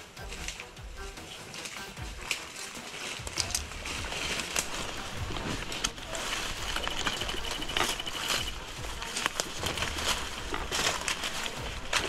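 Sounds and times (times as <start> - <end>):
footsteps through leaf litter: 0.0 - 12.0
high pulsing animal trill: 3.2 - 9.7.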